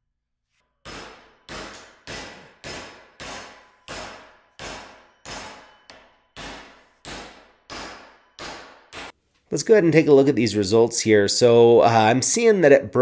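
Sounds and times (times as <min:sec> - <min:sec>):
hammer striking steel: 0:00.8 - 0:09.2.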